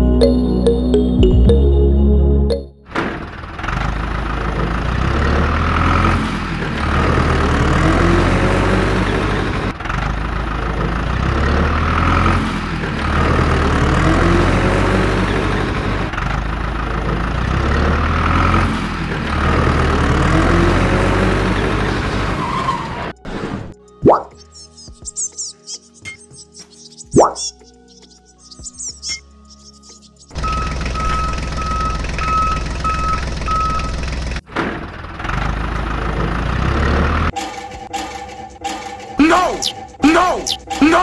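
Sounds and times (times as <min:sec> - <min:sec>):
tractor engine revving: 0:02.9 - 0:23.7, 0:30.3 - 0:41.0.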